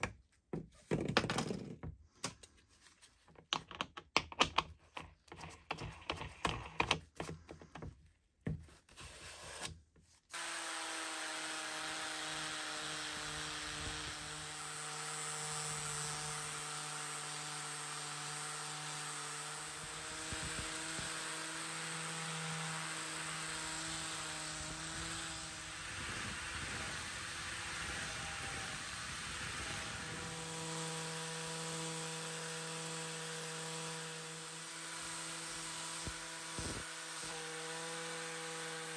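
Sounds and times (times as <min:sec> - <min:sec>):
angle grinder sanding metal: 0:10.3 - 0:38.9.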